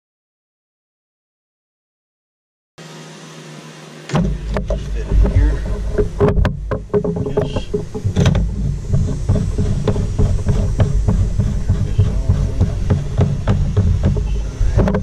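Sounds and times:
low rumble: 4.2s - 15.0s
plastic pipe fittings clicking: 4.2s - 15.0s.

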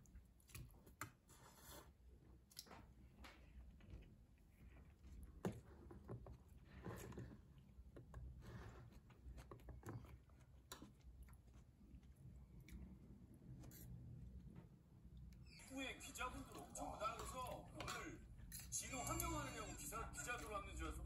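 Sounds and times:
quiet chewing: 0.0s - 20.8s.

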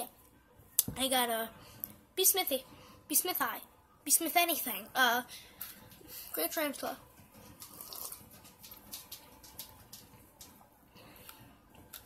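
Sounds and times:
sipping and swallowing coffee: 7.6s - 8.4s.

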